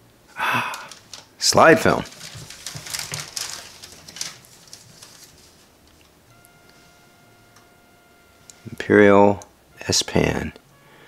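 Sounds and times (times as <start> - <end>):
plastic bag crinkling: 0.6 - 6.3.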